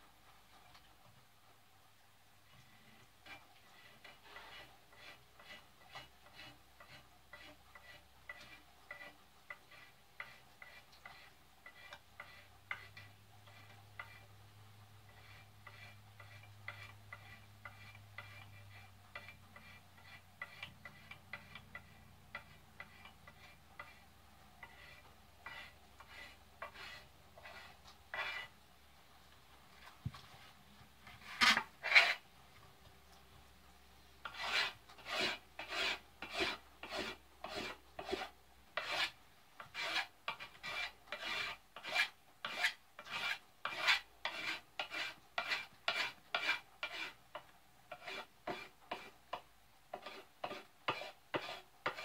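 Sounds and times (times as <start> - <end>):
knife scraping wooden handle: 3.2 - 14.4, 15.1 - 28.6, 31.0 - 32.2, 34.2 - 52.0.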